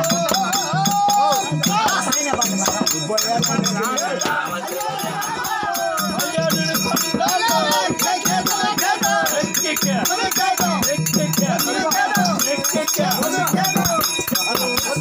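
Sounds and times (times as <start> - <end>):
percussion quick beat: 0.0 - 15.0.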